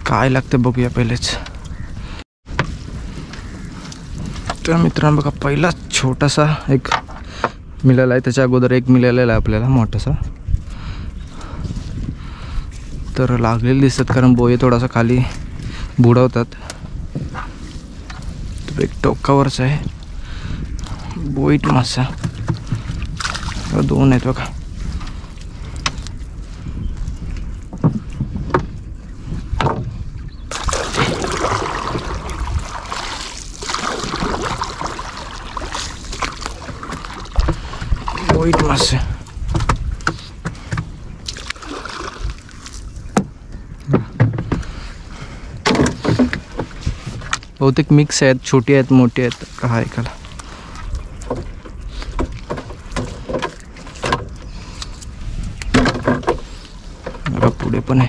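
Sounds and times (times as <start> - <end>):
water splashing and dripping: 18.0 - 26.4, 30.4 - 43.3
knocks on boat: 55.7 - 56.4.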